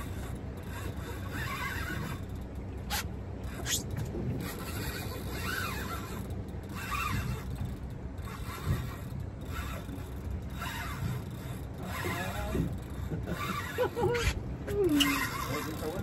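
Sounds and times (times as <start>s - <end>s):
fishing reel drag buzzing: 0.0s - 16.0s
steady low rumble: 0.0s - 16.0s.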